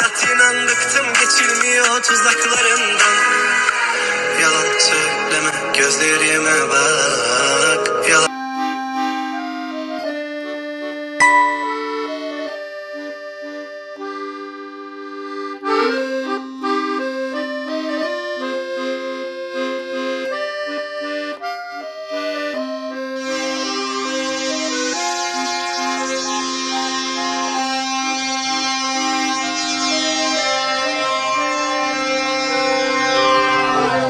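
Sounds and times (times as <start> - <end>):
instrumental melody of held notes: 7.1 - 34.0
low drone: 30.8 - 34.0.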